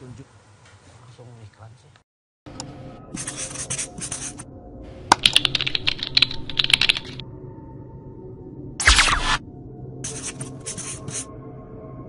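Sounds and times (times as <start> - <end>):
keyboard key clicks: 5.1 - 7.2.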